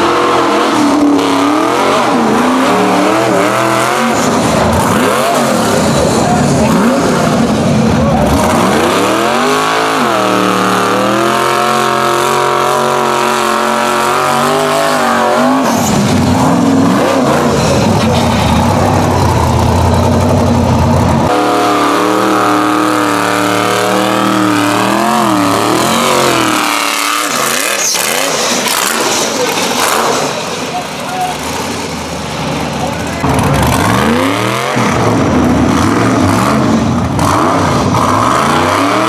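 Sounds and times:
buggy engine at high revs: 0.0s - 39.0s.

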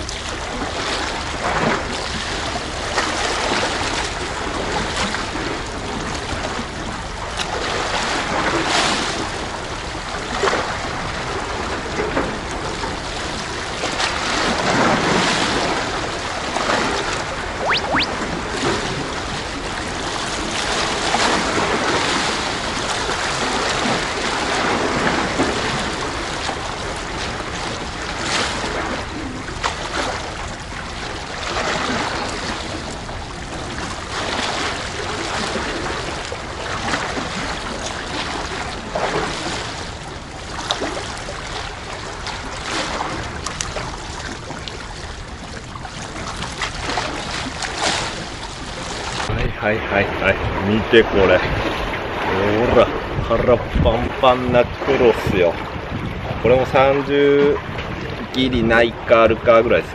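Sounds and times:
sea waves washing on concrete: 0.0s - 59.9s
wind rumbling on microphone: 19.0s - 56.8s, 57.4s - 59.1s.

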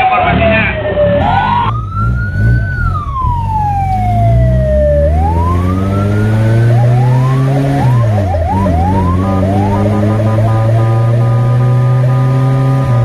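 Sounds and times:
fire truck siren wailing: 0.0s - 13.0s
truck engine running: 1.2s - 13.0s.

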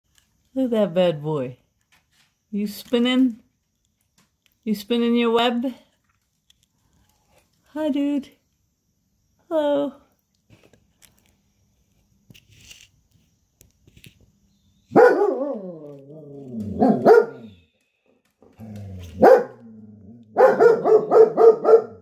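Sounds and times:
dog barking: 14.9s - 16.0s, 16.7s - 17.6s, 19.1s - 19.7s, 20.3s - 22.0s
dog howling: 14.9s - 17.6s, 18.6s - 22.0s.

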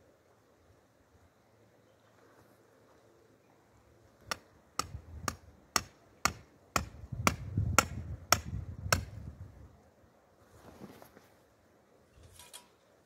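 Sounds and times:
stone striking tent stake: 4.3s - 9.2s.

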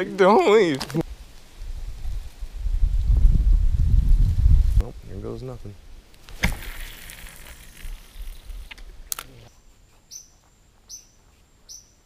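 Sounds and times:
bird chirp: 9.3s - 12.0s.

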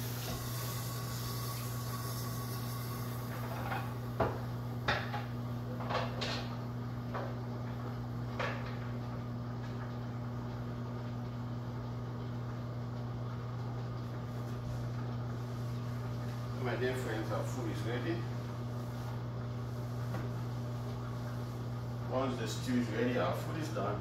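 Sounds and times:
steady low hum: 0.0s - 24.0s
dishes knocking and clinking: 3.3s - 6.5s.

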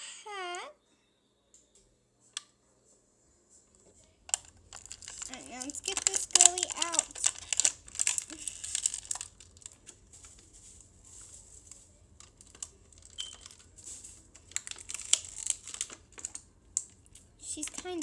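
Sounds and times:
plastic packaging crinkling: 4.2s - 18.0s.

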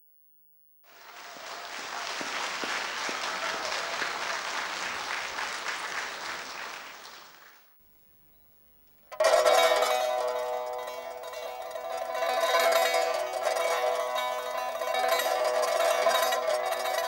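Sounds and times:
audience applauding: 0.9s - 7.8s.

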